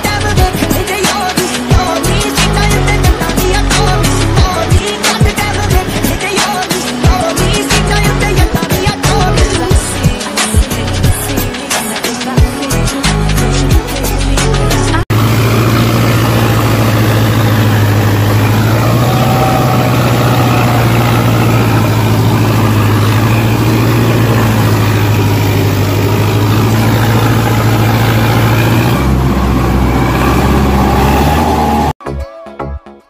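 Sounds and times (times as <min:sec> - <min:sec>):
motor droning: 0:15.1 - 0:32.0.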